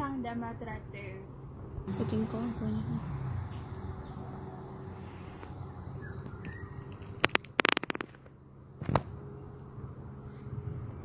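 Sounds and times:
steady low hum: 0:00.0 - 0:11.0
faint bird chirps: 0:05.0 - 0:07.9
sharp clicks and crackles: 0:06.2 - 0:09.1.

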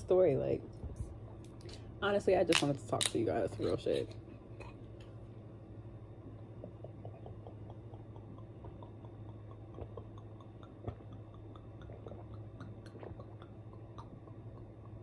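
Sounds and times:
low steady hum: 0:00.0 - 0:15.0
person swallowing from bottle: 0:06.5 - 0:14.9.

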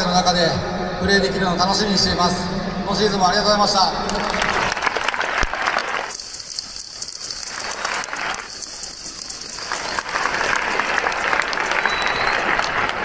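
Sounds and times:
stadium crowd applauding: 0:04.1 - 0:13.0.

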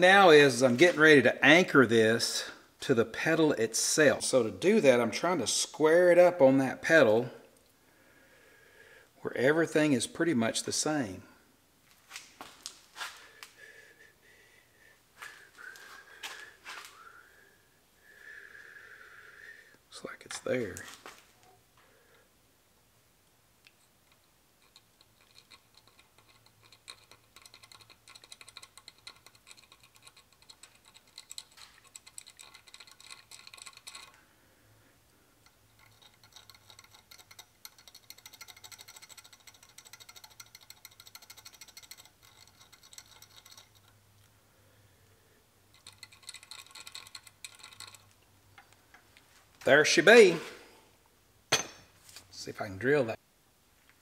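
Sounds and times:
steel bolts clicking and scraping: 0:23.7 - 0:34.2, 0:35.4 - 0:44.0, 0:45.7 - 0:50.4, 0:51.5 - 0:52.0.

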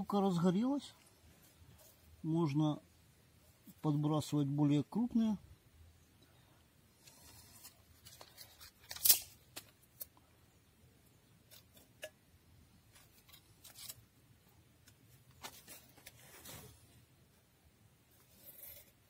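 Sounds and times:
rustling of sticks: 0:07.0 - 0:10.2, 0:11.4 - 0:12.1, 0:12.8 - 0:17.1.

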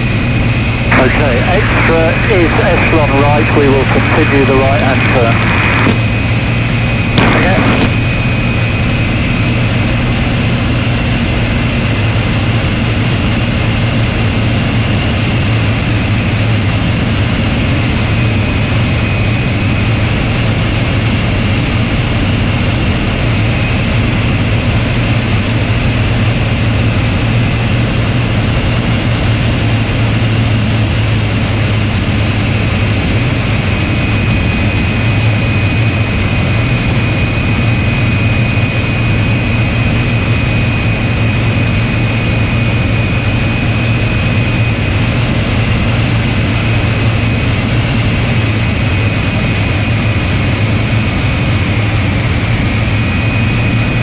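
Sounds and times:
aircraft engine drone: 0:00.0 - 0:54.0
thin steady high whine: 0:00.0 - 0:54.0
rush of air over canopy: 0:00.8 - 0:11.3.

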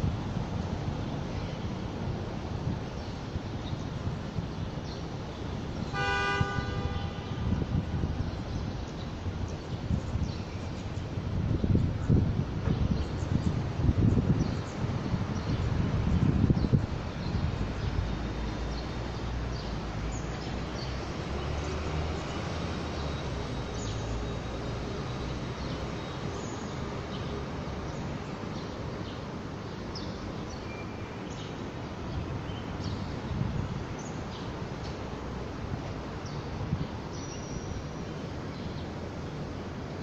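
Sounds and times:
wind hitting microphone: 0:00.0 - 0:24.0, 0:32.0 - 0:34.6
city background hum: 0:00.0 - 0:40.0.

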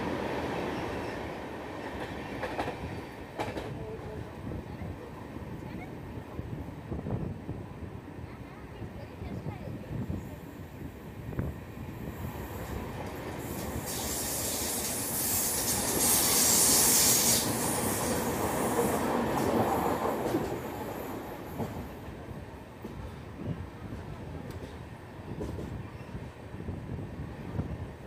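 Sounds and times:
train wheels rumbling on rails: 0:00.0 - 0:28.0
loud high hiss: 0:13.4 - 0:18.6.

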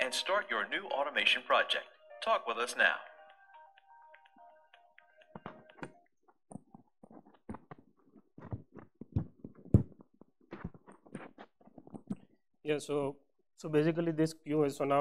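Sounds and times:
soft knocks and clicks at laptop: 0:05.3 - 0:12.3.

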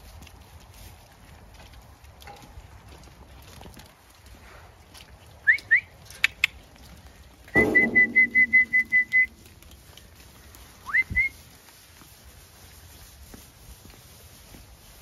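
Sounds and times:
loud knock with low ringing: 0:07.6 - 0:08.8
person whistling: 0:07.6 - 0:09.4, 0:10.8 - 0:11.4.

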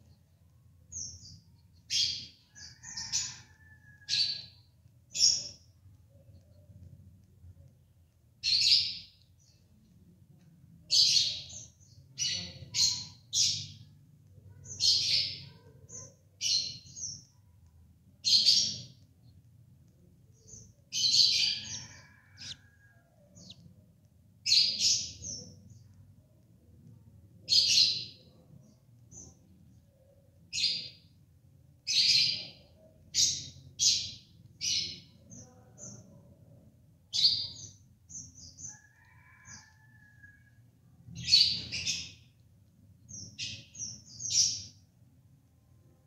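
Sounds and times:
budgerigar chirping: 0:21.2 - 0:22.6.

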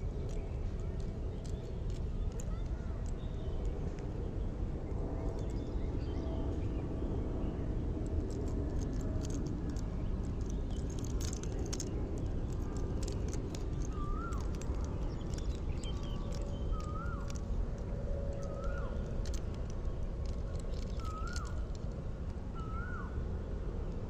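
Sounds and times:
outdoor background rumble: 0:00.0 - 0:24.0
light clicks: 0:00.2 - 0:04.1, 0:08.0 - 0:22.4.

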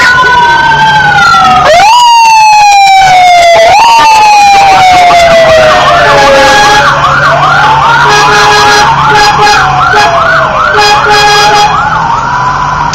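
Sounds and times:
siren fast yelp: 0:00.0 - 0:12.4
siren rising and falling wail: 0:00.0 - 0:12.9
vehicle engines humming: 0:00.0 - 0:12.9
horn-like tones: 0:06.0 - 0:07.0, 0:08.0 - 0:11.8.

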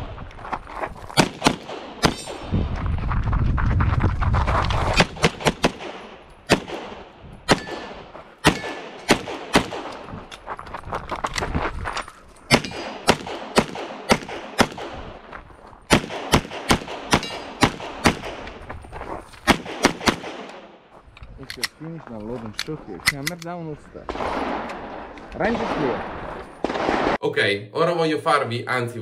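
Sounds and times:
pistol shots: 0:01.2 - 0:02.5, 0:05.0 - 0:10.2, 0:12.5 - 0:15.2, 0:15.9 - 0:18.6, 0:19.5 - 0:20.8, 0:24.1 - 0:27.2.

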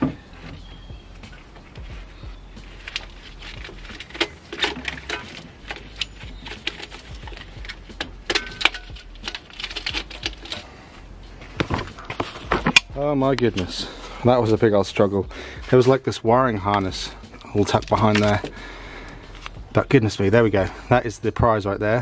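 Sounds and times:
sharp metallic clinks and knocks: 0:02.9 - 0:10.7.

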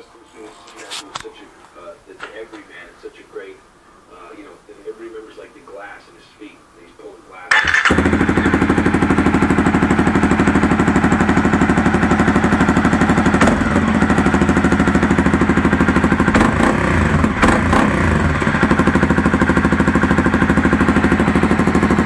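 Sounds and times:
motorcycle engine running: 0:07.5 - 0:22.0.

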